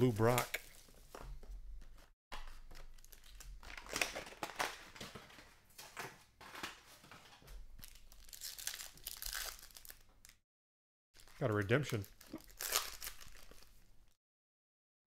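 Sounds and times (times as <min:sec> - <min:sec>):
foil pack crinkling: 0:02.5 - 0:05.5, 0:07.8 - 0:10.4, 0:11.2 - 0:13.8.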